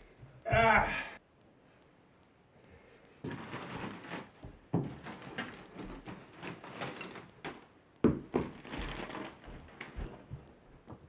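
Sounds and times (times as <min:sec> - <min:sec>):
plastic bag crinkling: 0:03.2 - 0:07.7, 0:08.4 - 0:10.2.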